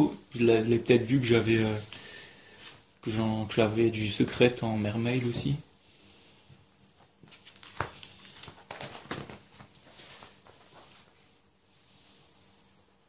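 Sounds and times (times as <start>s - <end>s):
plastic binder pages turning: 7.2s - 10.8s.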